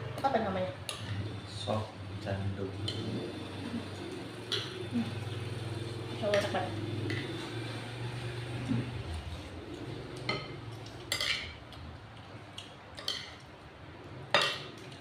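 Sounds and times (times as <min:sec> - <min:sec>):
spoons clinking on ceramic plates: 0:10.2 - 0:11.6, 0:13.0 - 0:13.4, 0:14.3 - 0:15.0.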